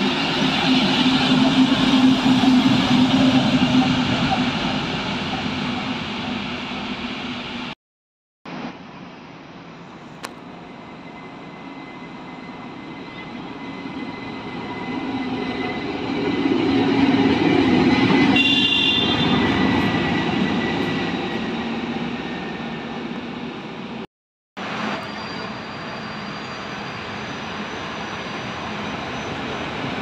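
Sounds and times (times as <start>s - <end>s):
diesel locomotive passing: 0.0s - 7.8s, 8.5s - 30.0s.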